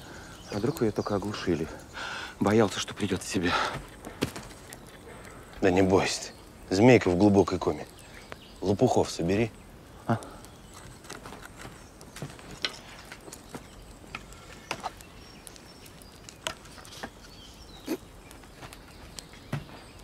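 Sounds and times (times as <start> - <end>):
forest ambience: 0.0 - 20.0
wood cracking and clicking: 2.4 - 5.7, 10.1 - 20.0.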